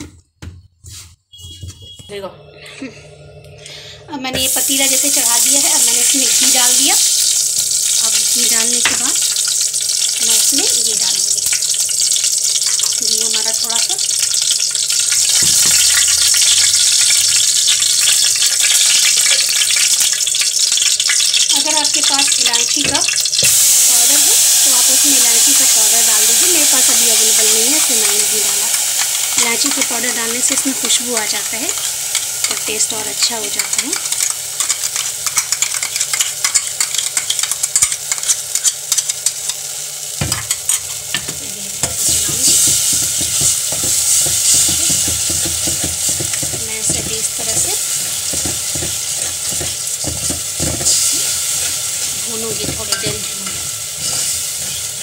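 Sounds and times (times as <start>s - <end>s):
butter sizzling in a pot: 3.1s - 55.0s
spoon stirring in a pot: 26.9s - 39.6s, 40.2s - 55.0s
spoon knocking against pot: 40.2s - 51.0s, 52.5s - 53.7s.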